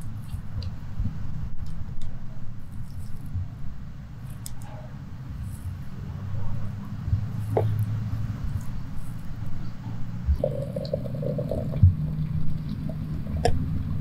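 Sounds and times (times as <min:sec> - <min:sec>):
steady low rumble: 0:00.0 - 0:14.0
water pouring into glass teapot: 0:10.4 - 0:14.0.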